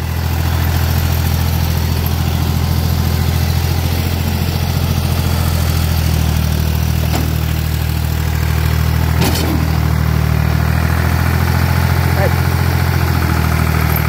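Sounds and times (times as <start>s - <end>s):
tractor engine running: 0.0s - 14.0s
loader clank: 2.0s - 10.6s.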